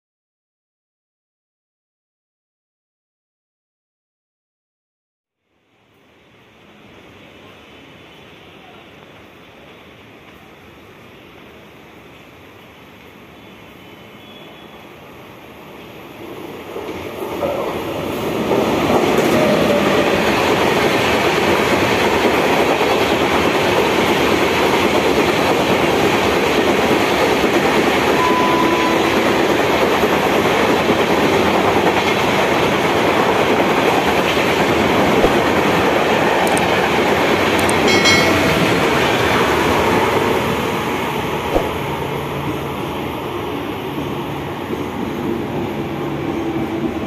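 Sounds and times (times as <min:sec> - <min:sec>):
train wheels rushing and clattering: 0:16.2 - 0:45.6.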